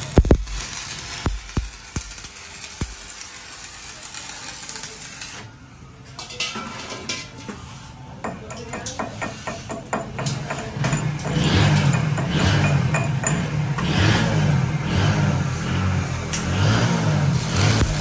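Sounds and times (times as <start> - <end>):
welding arc crackling: 0.0 - 5.5, 13.9 - 18.0.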